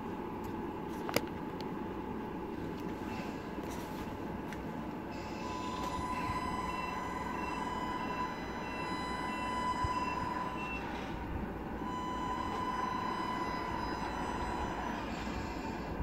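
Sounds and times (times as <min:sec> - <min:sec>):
wavering whining hum: 0:00.0 - 0:16.0
reversing beeper: 0:05.1 - 0:11.2, 0:11.8 - 0:16.0.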